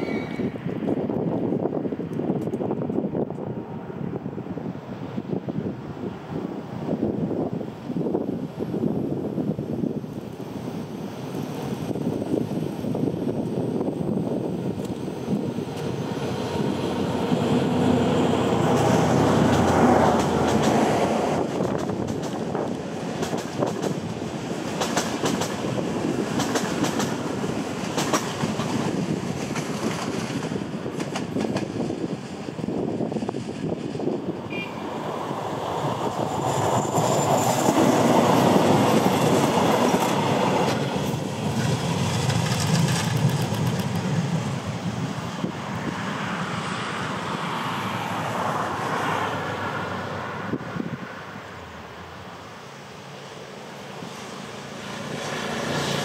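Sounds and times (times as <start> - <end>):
train passing: 0.0 - 56.0
wheels clicking over rail joints: 38.5 - 44.2.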